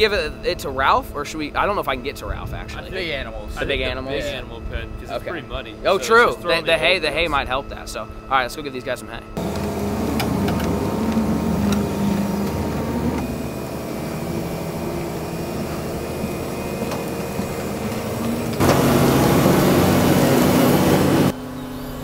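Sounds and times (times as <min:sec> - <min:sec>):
loud rushing noise: 0:09.4 - 0:21.4
excavator diesel engine humming: 0:09.4 - 0:22.0.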